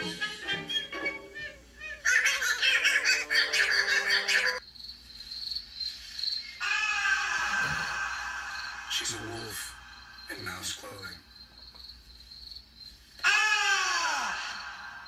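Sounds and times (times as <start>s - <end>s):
insect chirring chorus: 4.6s - 15.0s.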